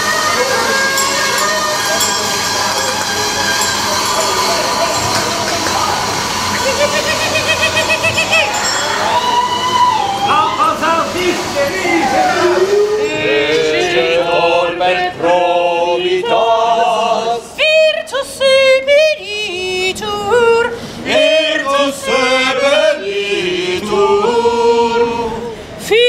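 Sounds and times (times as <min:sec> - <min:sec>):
group singing a cappella: 0:11.4 - 0:26.0.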